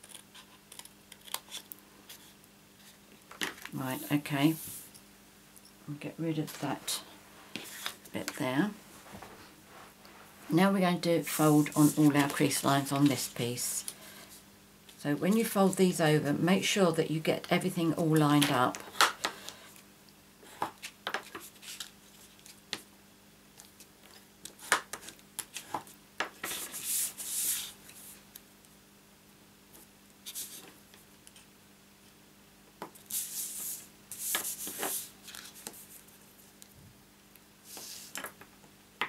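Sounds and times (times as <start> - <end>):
paper rubbing and rustling: 11.3 - 12.4, 26.4 - 28.2, 33.1 - 36.6.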